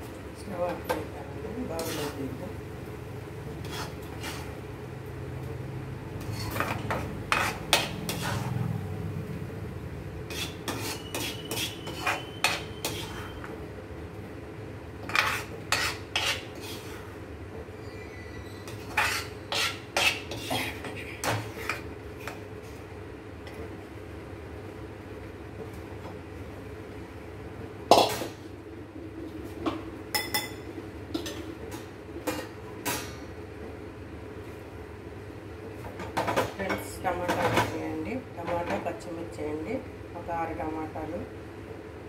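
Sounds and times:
metal spatula scraping a pan: 1.7s - 2.2s, 3.6s - 4.6s, 6.2s - 8.7s, 10.2s - 13.5s, 15.0s - 17.2s, 17.8s - 22.4s.

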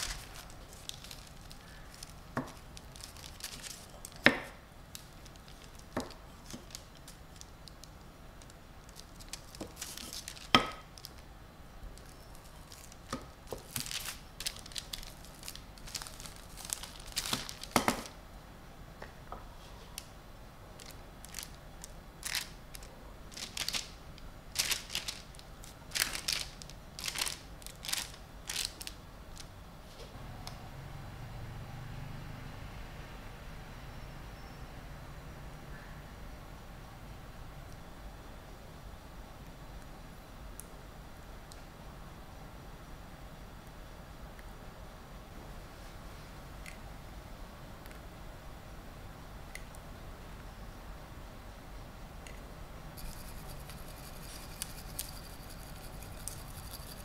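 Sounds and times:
parchment paper crinkling: 0.0s - 11.2s, 12.0s - 18.2s, 20.8s - 29.5s, 53.0s - 57.0s.

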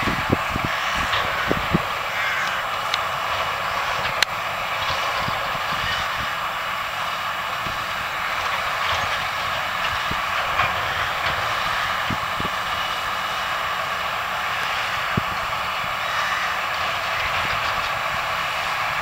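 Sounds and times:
farm machinery droning: 0.0s - 19.0s.

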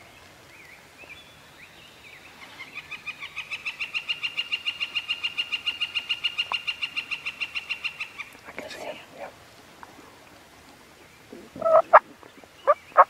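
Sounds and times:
soft warbling birdsong: 10.9s - 13.0s.

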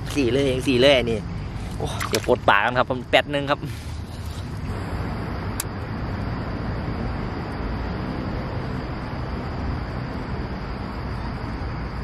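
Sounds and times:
distant traffic hum: 0.0s - 12.0s.

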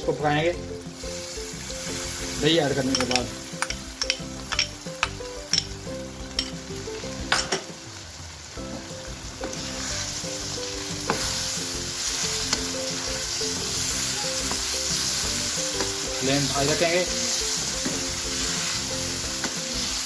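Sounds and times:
meat sizzling in a pan: 0.0s - 20.0s
wooden spatula knocking a pan: 11.0s - 11.4s, 14.4s - 14.7s, 15.7s - 18.5s.

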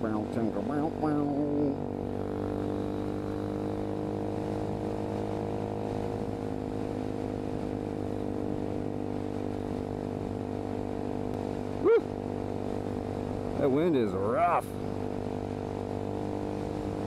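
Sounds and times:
motorcycle engine cruising: 0.0s - 17.0s.

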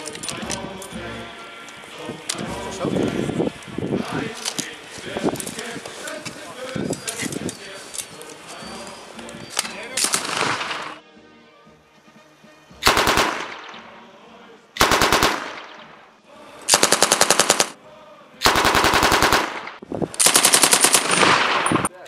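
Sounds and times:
machine gun automatic fire: 10.0s - 11.0s, 12.9s - 13.7s, 14.8s - 15.8s, 16.7s - 17.8s, 18.4s - 21.9s.

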